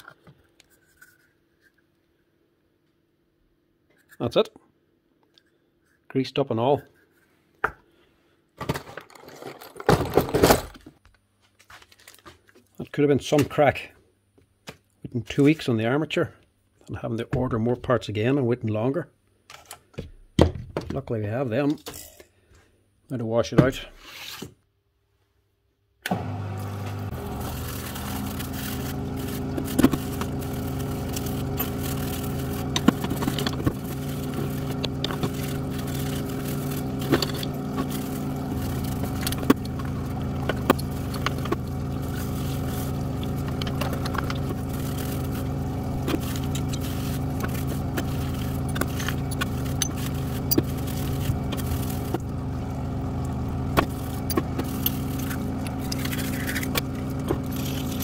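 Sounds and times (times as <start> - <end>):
parts washer humming: 26.0 - 58.0
metal parts clinking: 47.6 - 50.9.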